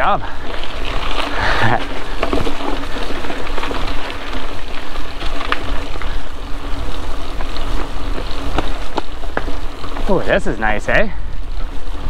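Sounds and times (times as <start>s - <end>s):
bike rattling and clicking: 0.0s - 12.0s
tyres crunching on dirt: 0.0s - 12.0s.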